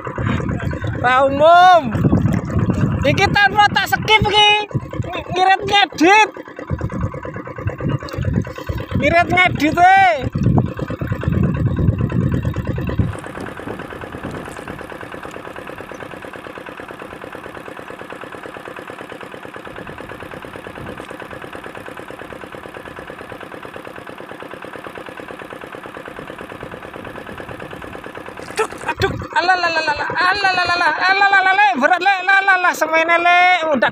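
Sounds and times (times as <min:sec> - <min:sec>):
loud low rumble: 0:00.0 - 0:16.2, 0:28.8 - 0:31.6
diesel engine running: 0:00.0 - 0:33.9.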